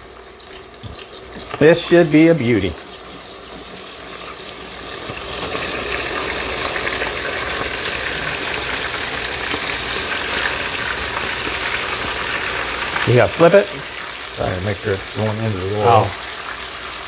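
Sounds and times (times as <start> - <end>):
deep-frying sizzle: 0.0 - 17.0.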